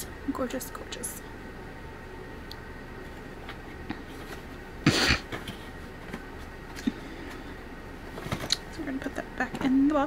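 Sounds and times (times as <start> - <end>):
person coughing: 4.8 - 5.4.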